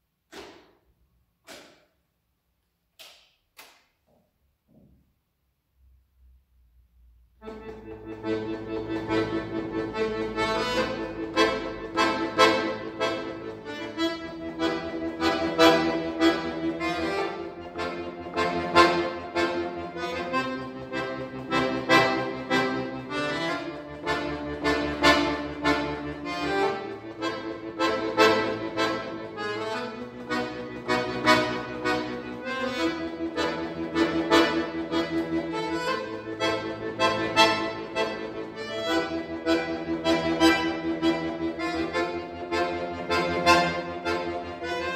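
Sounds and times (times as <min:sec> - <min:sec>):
button accordion playing: 0:07.4 - 0:44.9.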